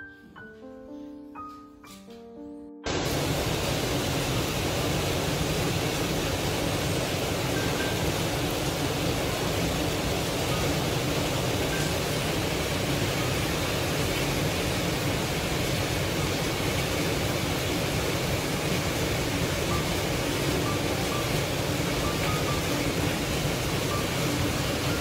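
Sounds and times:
steady hiss: 0:02.9 - 0:25.0.

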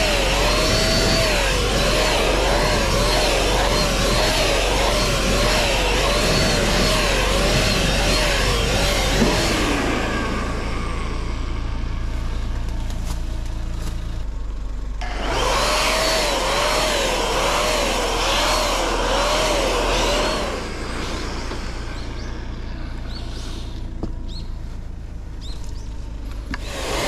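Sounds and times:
electric paint sprayer hissing: 0:00.0 - 0:11.9, 0:15.0 - 0:24.2, 0:26.5 - 0:27.0.

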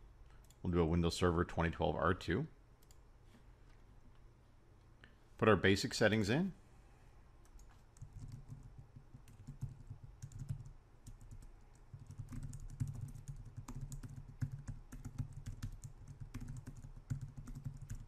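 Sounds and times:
typing on keyboard: 0:07.4 - 0:18.0.

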